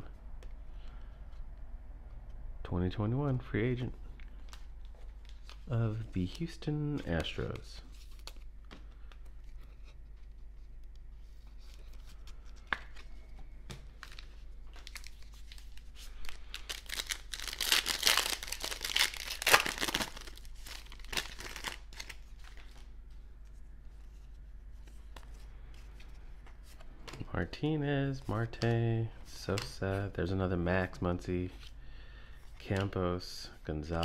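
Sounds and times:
cards being handled: 4.1s - 27.3s
foil wrapper tearing and crinkling: 14.8s - 22.2s.

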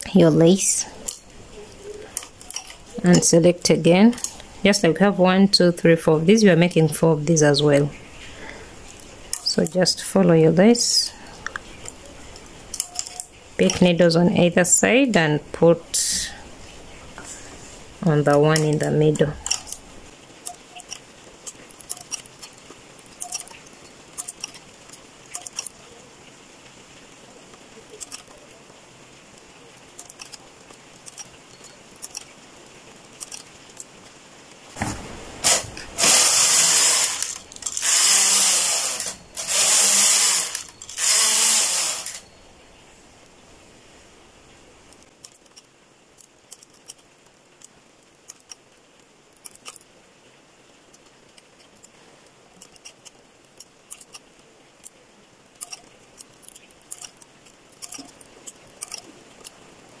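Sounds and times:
knitting machine carriage scraping: 0.0s - 3.5s, 10.8s - 14.1s, 20.4s - 25.8s, 27.9s - 28.5s, 30.0s - 32.4s, 33.1s - 33.9s, 34.8s - 42.3s, 52.6s - 54.3s, 55.6s - 59.6s
transfer tool clicking on needles: 20.4s - 25.7s, 28.0s - 28.4s, 30.0s - 32.3s, 33.2s - 33.9s, 35.4s - 42.2s, 44.9s - 47.0s, 47.6s - 48.6s, 49.4s - 49.8s, 52.6s - 54.2s, 55.6s - 59.6s.

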